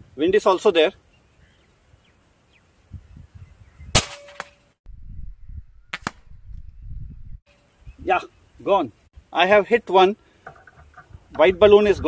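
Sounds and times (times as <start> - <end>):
air rifle shot crack: 3.9 - 4.5.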